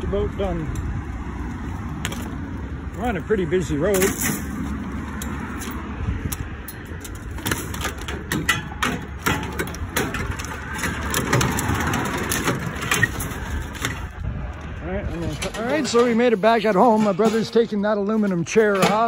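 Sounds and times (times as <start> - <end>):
road traffic passing: 0.0 - 19.0
scrap metal knocks and rattles: 3.8 - 19.0.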